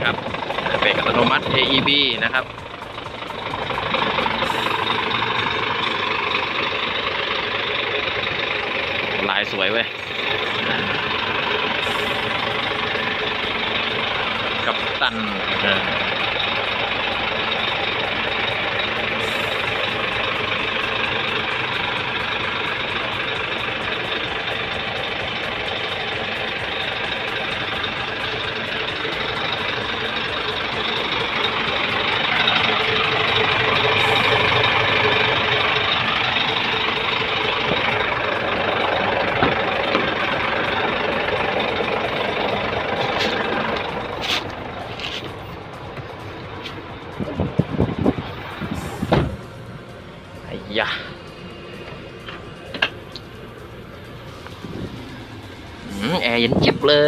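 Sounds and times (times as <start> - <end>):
diesel truck engine idling: 0.0 - 57.0
sharp clicks and knocks: 52.2 - 53.3.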